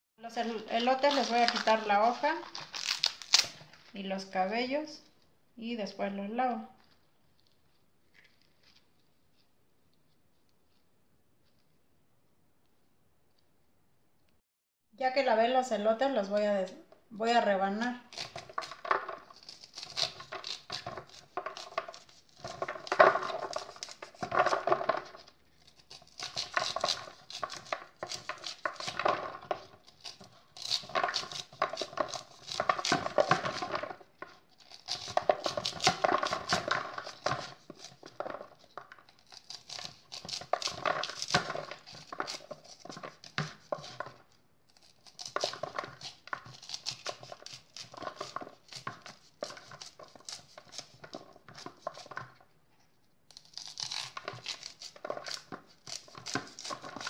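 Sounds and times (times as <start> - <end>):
knife slicing corn kernels: 0.8 - 3.6, 18.0 - 52.4, 53.3 - 57.0.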